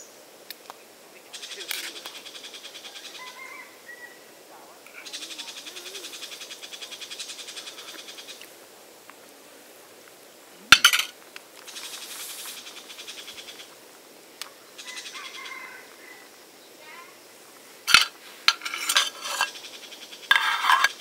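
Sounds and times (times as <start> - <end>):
metal spoon clinking on pan lid: 10.7 - 11.1, 17.9 - 19.5, 20.3 - 21.0.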